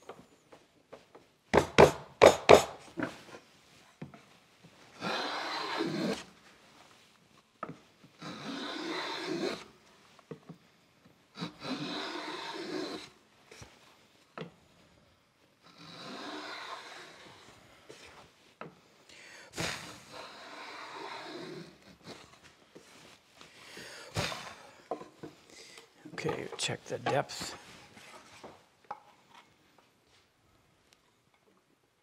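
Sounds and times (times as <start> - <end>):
router plane shaving wood: 5.0 - 6.2, 8.3 - 9.6, 11.4 - 13.1, 15.8 - 17.5, 19.9 - 22.2.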